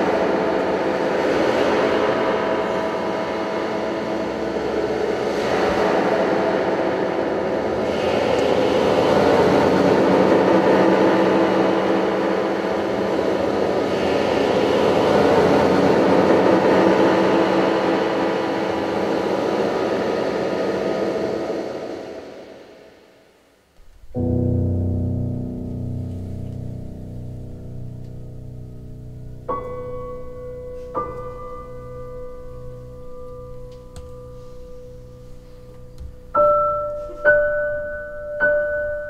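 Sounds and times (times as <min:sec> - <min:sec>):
droning rumble with held tones: 0:00.0 - 0:22.7, 0:23.8 - 0:39.0.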